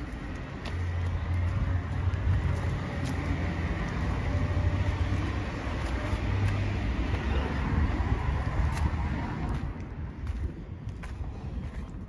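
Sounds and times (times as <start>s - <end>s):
traffic engine rumble: 0.0s - 12.0s.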